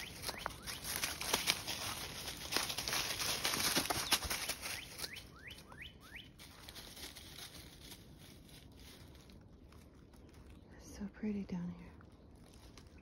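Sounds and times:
bird chirping: 0.0s - 1.2s, 3.9s - 6.6s
faint rustles and clicks: 0.0s - 5.3s, 6.3s - 13.0s
footsteps crunching through leaves: 0.0s - 13.0s.

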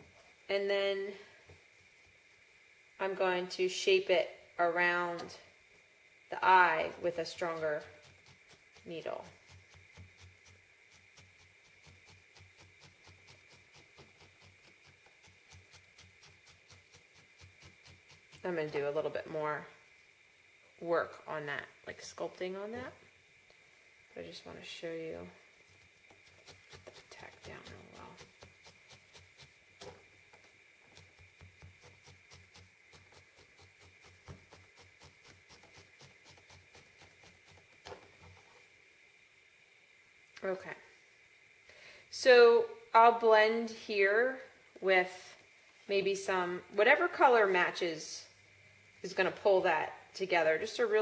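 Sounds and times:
felting needle poking wool: 7.1s - 19.1s, 25.6s - 38.6s.

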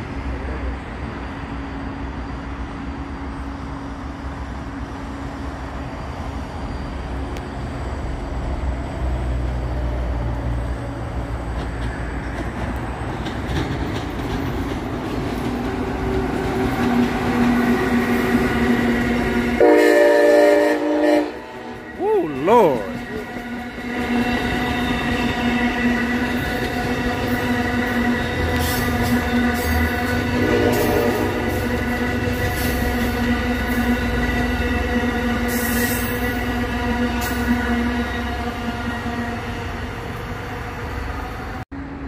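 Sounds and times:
train wheels rumbling on rail: 0.0s - 42.0s
train horn blast: 19.4s - 21.7s, 30.1s - 31.7s.

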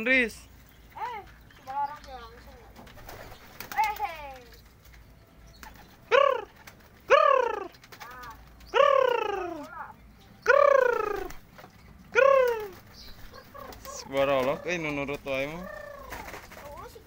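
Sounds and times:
animal calling: 6.1s - 11.4s, 12.1s - 16.4s.

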